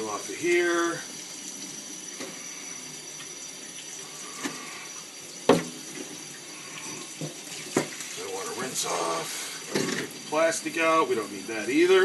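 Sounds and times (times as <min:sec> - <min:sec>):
tap running into sink: 0:05.4 - 0:06.2, 0:06.8 - 0:08.7, 0:09.6 - 0:10.3.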